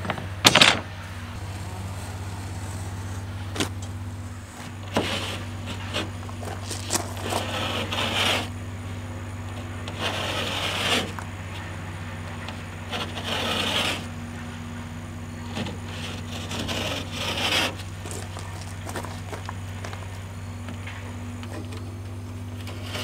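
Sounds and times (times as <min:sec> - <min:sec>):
utility knife scoring drywall: 0:06.7 - 0:08.6, 0:09.8 - 0:11.2, 0:12.4 - 0:14.1, 0:15.6 - 0:18.0.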